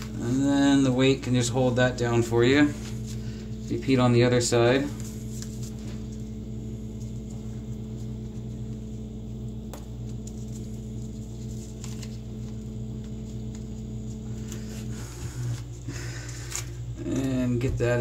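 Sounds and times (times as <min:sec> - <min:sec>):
electrical hum: 0:00.0 - 0:18.0
paper crinkling: 0:02.6 - 0:06.3, 0:10.0 - 0:17.4.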